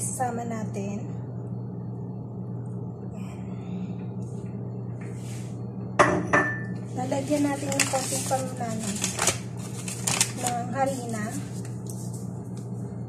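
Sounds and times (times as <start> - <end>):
steady low hum: 0.0 - 13.0
kitchenware knocking: 6.0 - 6.7.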